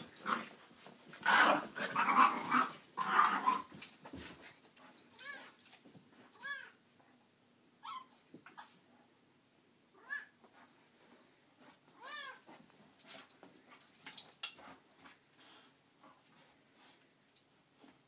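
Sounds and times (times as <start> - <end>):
dog squeaks: 7.8 - 8.1.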